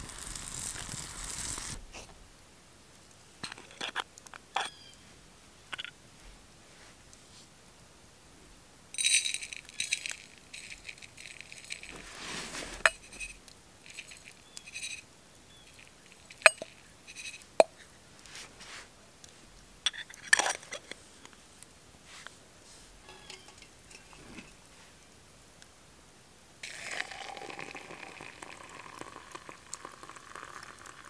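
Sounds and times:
metal tin and cup clinking: 0:09.0 - 0:12.0, 0:12.8 - 0:15.0, 0:15.6 - 0:17.9, 0:19.9 - 0:20.9, 0:23.0 - 0:24.6.

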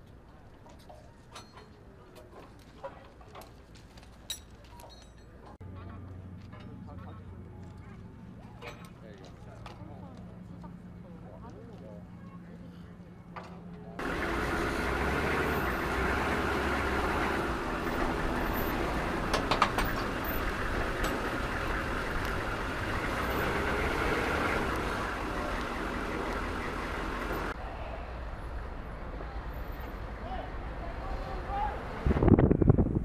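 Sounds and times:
diesel engine running: 0:14.0 - 0:27.6.

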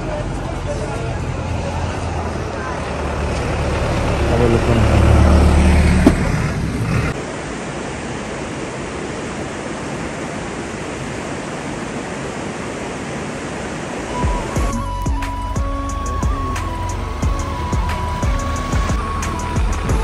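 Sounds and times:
vehicle engine rumbling: 0:00.0 - 0:07.2, 0:14.2 - 0:20.0
steady rushing noise: 0:05.9 - 0:20.0.

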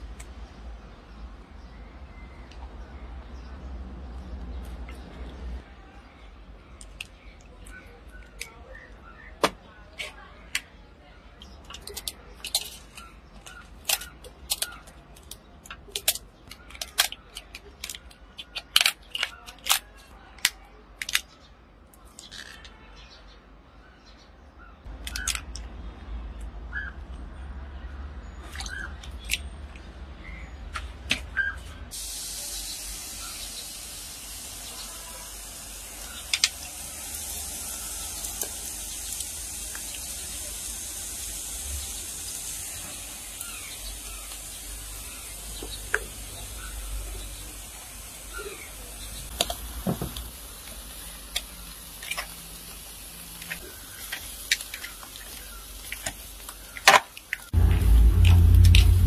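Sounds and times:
lobster shells cracking: 0:11.6 - 0:21.3, 0:49.3 - 0:57.5
steady high hiss: 0:32.0 - 0:54.6.

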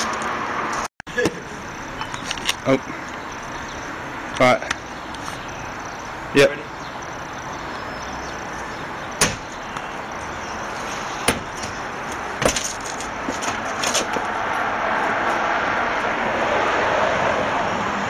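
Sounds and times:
road traffic noise: 0:00.0 - 0:18.0
sharp knocks: 0:09.2 - 0:09.9, 0:11.2 - 0:11.8, 0:12.4 - 0:14.3.

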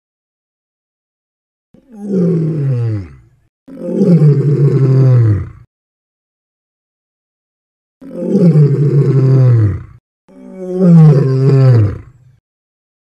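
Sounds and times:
lion roaring: 0:01.8 - 0:05.7, 0:08.0 - 0:12.2.

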